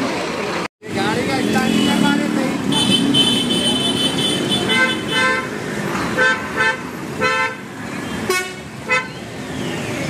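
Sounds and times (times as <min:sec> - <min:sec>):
road traffic: 0:00.0 - 0:10.0
vehicle horn beeping: 0:01.5 - 0:05.6, 0:06.2 - 0:09.2.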